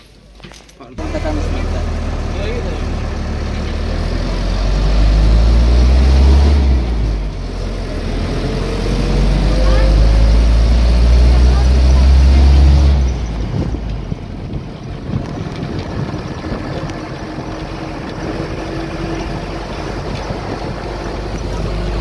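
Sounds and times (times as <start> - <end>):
road noise: 0.0 - 22.0
car cabin drone: 1.0 - 22.0
wind buffeting microphone: 6.6 - 22.0.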